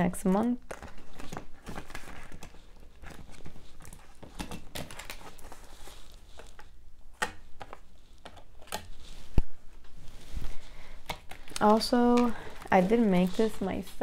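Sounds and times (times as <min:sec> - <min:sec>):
paper banknotes rustling: 0:07.6 - 0:14.0.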